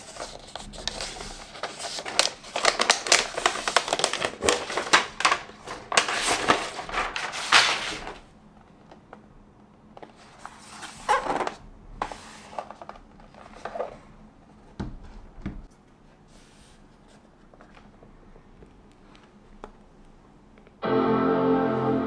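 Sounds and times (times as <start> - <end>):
laptop rustling in hands: 10.0 - 15.2.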